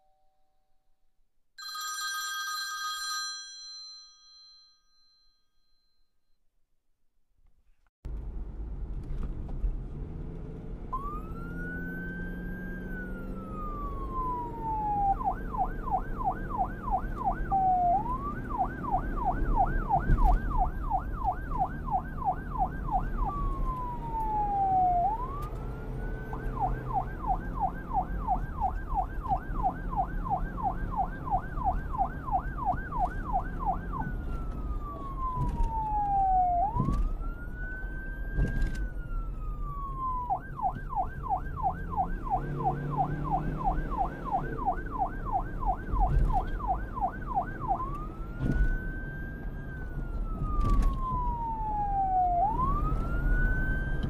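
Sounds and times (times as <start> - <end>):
police siren yelping and wailing: 10.9 - 54.0.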